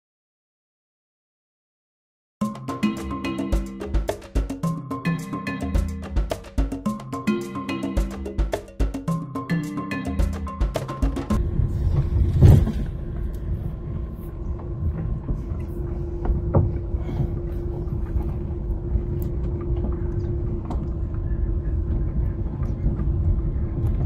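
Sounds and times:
steady hum: 11.2 - 24.0
car engine and tyres rumbling: 11.4 - 24.0
car bump: 12.0 - 13.0.

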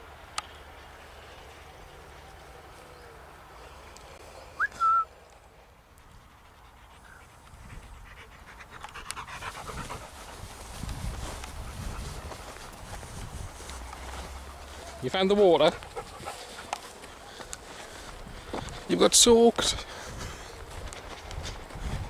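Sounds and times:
dog panting: 5.9 - 18.9.

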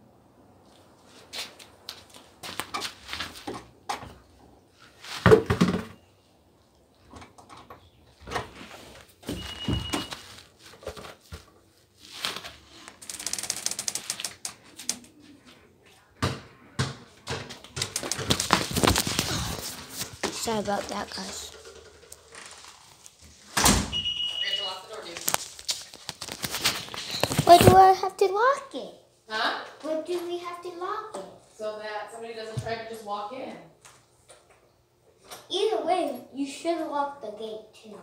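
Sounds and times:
rustling: 17.9 - 23.6.

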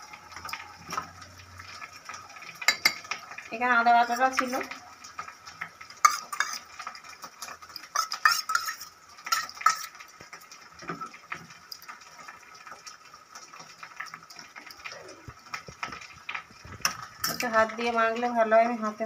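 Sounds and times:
metal spoon clinking steel bowl: 2.6 - 3.2, 6.0 - 6.8, 7.4 - 10.0, 16.8 - 17.6
spoon scraping crab pieces: 6.0 - 10.0.

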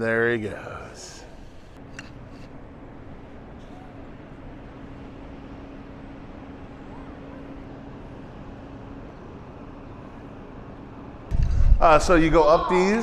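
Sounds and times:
constant low hum: 0.0 - 13.0.

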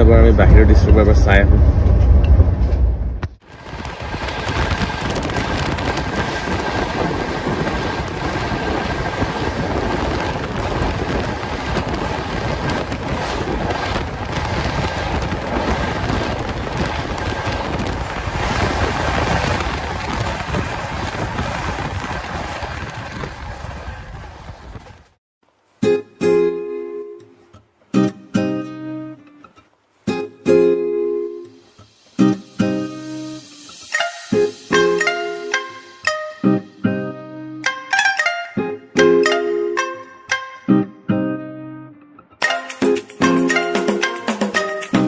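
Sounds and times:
train rumbling on track: 0.0 - 25.2
wind rushing past open door: 0.6 - 25.2.

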